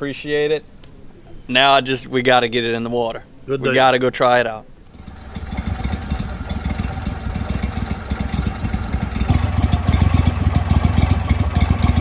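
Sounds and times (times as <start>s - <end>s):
boat motor idling: 4.9s - 12.0s.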